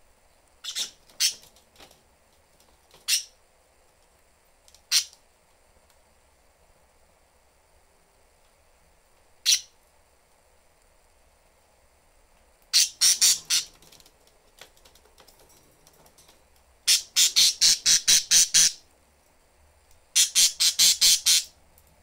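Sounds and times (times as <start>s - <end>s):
budgerigars squawking: 0.6s - 1.4s, 9.5s - 9.7s, 12.8s - 13.7s, 16.9s - 18.8s, 20.2s - 21.5s.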